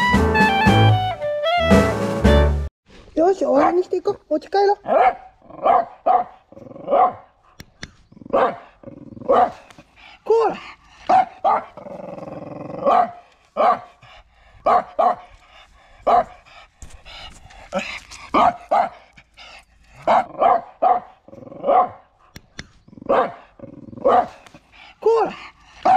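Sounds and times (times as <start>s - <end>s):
dog barking: 4.8s - 7.3s, 8.3s - 9.6s, 11.1s - 11.8s, 12.8s - 14.0s, 14.6s - 15.3s, 16.0s - 16.4s, 18.3s - 19.0s, 20.0s - 22.1s, 23.0s - 23.4s, 24.0s - 24.4s.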